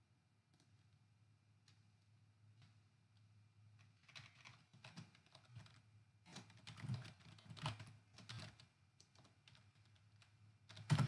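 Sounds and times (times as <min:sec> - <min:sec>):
typing on computer keyboard: 0:03.8 - 0:11.0.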